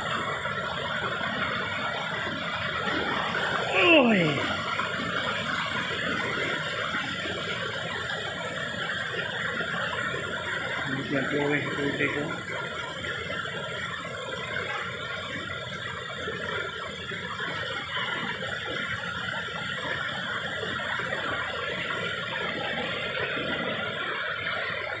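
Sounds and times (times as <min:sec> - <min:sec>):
stream running over stones: 0:00.0 - 0:25.0
waterfall pouring into pool: 0:00.0 - 0:25.0.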